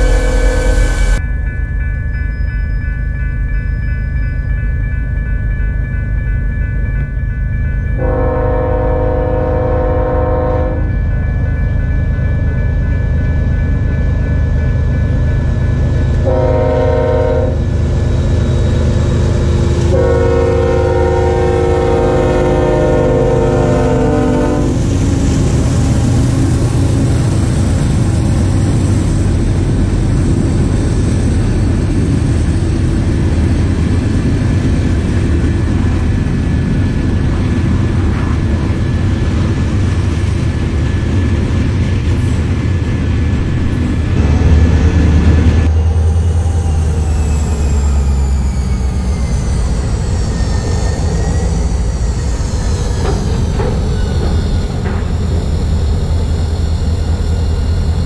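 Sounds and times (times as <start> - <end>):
locomotive air horn: 0.0 - 1.0, 8.0 - 10.9, 16.2 - 17.6, 19.9 - 24.8
freight cars rolling on rails: 24.8 - 58.0.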